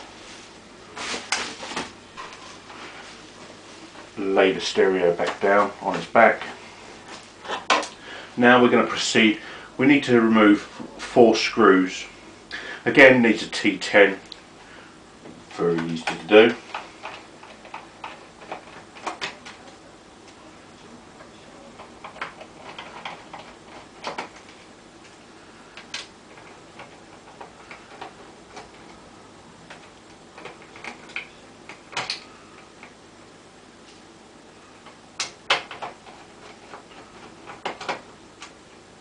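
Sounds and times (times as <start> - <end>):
plastic parts knocking: 34.8 - 38.1.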